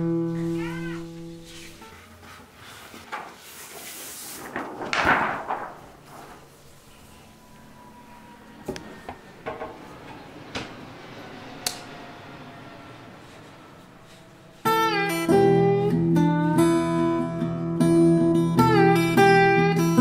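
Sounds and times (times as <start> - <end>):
plucked acoustic guitar music: 14.7 - 20.0.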